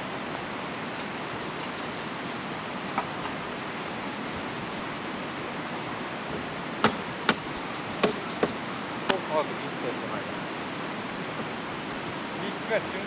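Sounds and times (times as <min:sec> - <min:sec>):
background hiss: 0:00.0 - 0:13.0
small birds chirping: 0:00.4 - 0:09.4.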